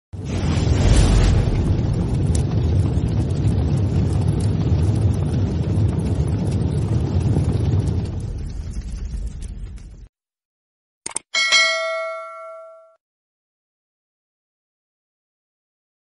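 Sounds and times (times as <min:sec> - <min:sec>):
deep steady rumble: 0:00.2 - 0:10.1.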